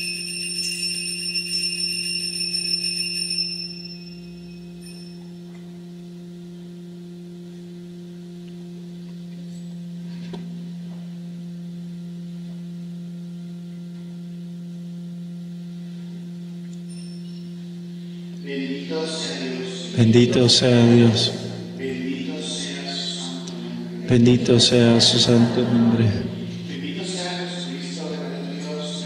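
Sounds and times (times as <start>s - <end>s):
small altar bells ringing: 0.0s - 5.9s, 16.4s - 23.4s
low droning held note: 0.0s - 29.0s.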